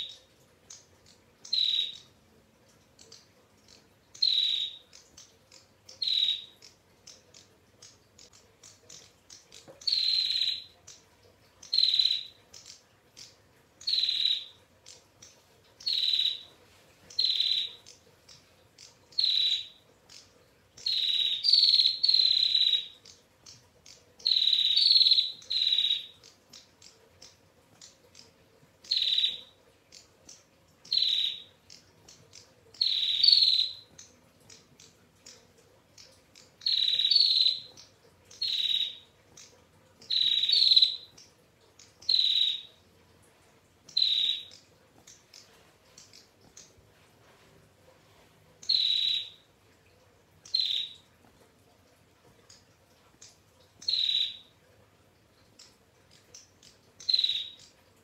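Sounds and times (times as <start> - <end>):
bird calling in trilled bursts: 0.0 - 2.2, 3.0 - 11.0, 11.6 - 16.5, 17.1 - 18.0, 18.7 - 41.4, 42.0 - 42.8, 43.9 - 44.7, 48.6 - 49.5, 50.4 - 51.0, 53.8 - 54.5, 57.0 - 57.8.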